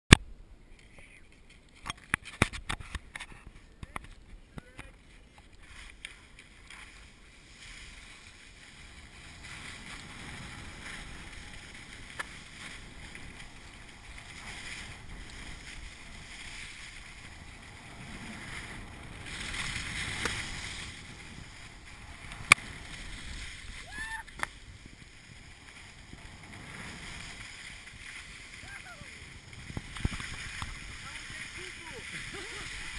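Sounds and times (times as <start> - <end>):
skis scraping over snow: 2.3 - 32.9
wind on microphone: 6.6 - 32.9.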